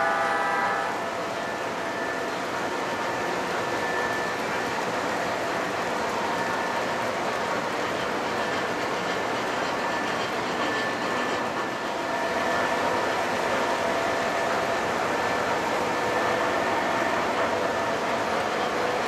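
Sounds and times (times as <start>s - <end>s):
model train wheels on track: 0.0s - 19.0s.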